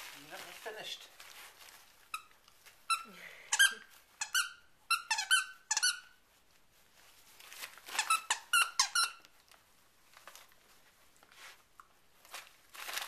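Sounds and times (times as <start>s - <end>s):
dog toy squeaking: 2.9s - 6.2s, 7.9s - 9.2s.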